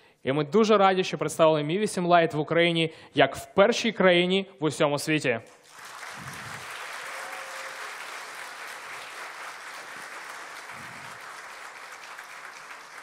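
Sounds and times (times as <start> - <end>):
audience applauding: 5.6 - 13.0.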